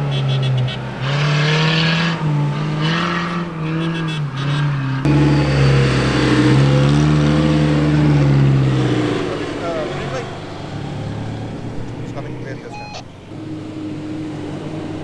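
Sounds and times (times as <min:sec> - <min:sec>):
engine revving hard: 0:00.0 - 0:12.6
deep engine rumble: 0:05.0 - 0:15.0.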